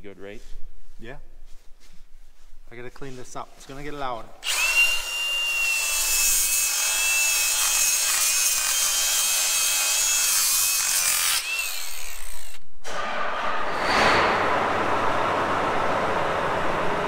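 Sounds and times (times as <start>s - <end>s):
power tool grinding metal: 4.4s - 12.6s.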